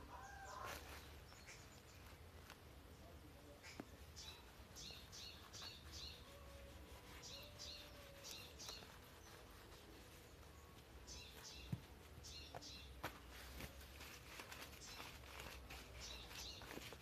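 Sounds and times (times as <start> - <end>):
low outdoor background noise: 0.0 - 17.0
faint bird chirps: 3.0 - 13.5.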